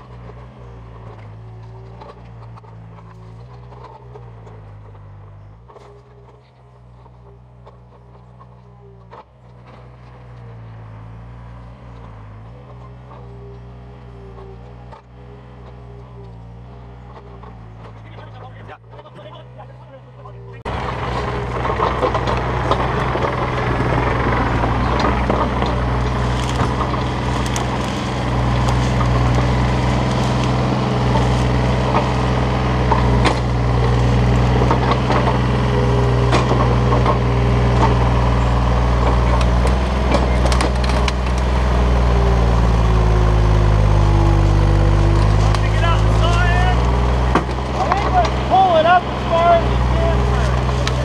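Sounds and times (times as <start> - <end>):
excavator diesel engine running: 0.0 - 51.0
brush cracking and knocks: 20.6 - 51.0.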